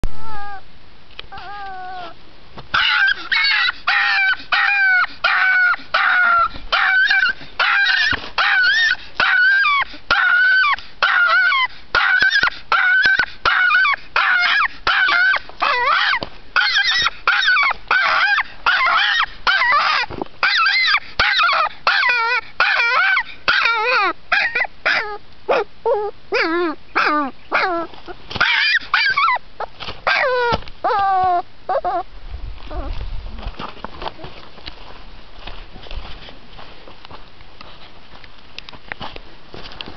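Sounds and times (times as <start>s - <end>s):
puppy yapping: 2.7s - 32.0s.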